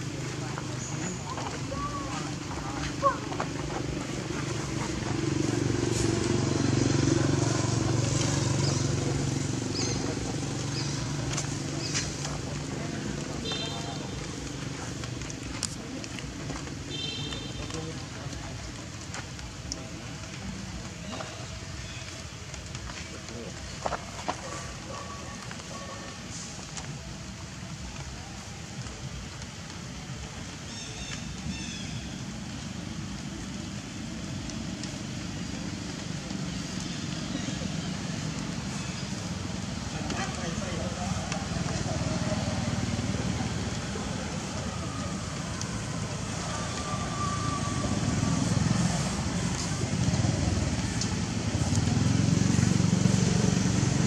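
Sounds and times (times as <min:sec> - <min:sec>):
vehicle engine passing by: 0:00.0 - 0:15.7, 0:33.2 - 0:54.0.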